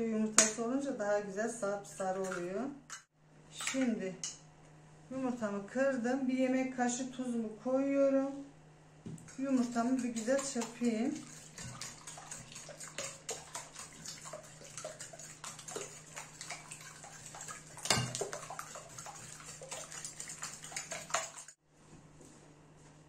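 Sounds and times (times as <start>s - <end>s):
fork beating eggs in glass bowl: 9.3s - 21.6s.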